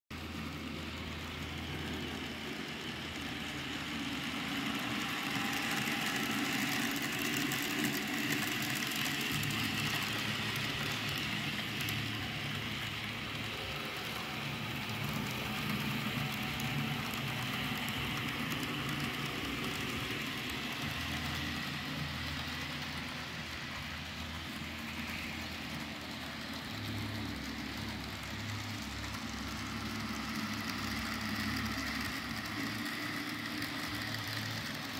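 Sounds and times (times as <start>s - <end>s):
wheels rolling on track: 0.1s - 34.9s
model train motor whirring: 0.2s - 34.9s.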